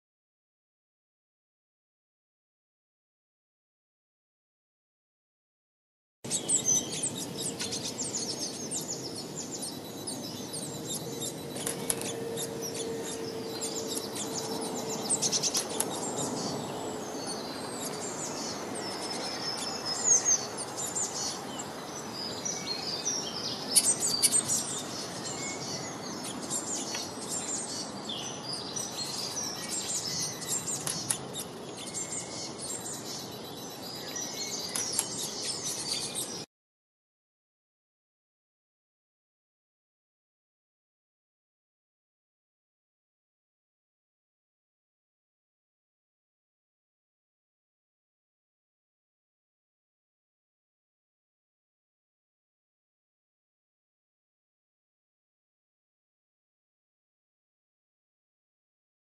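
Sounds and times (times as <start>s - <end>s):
songbirds chirping: 6.3s - 36.5s.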